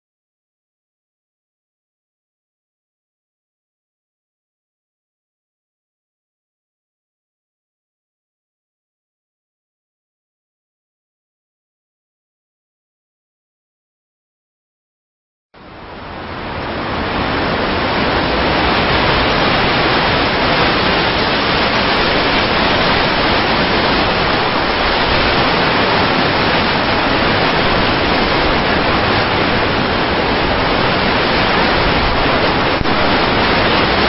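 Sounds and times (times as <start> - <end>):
blizzard wind rushing hiss: 16.0 - 34.0.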